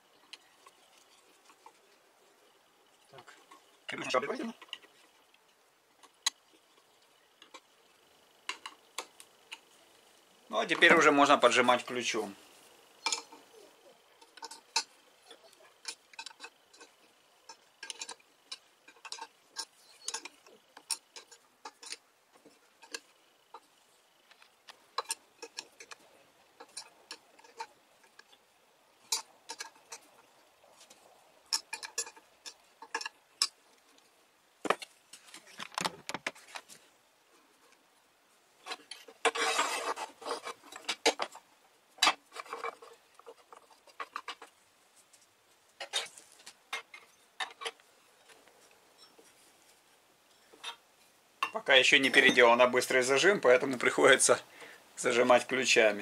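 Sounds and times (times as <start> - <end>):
rattling and scraping: 10.5 - 37.8, 38.6 - 54.0.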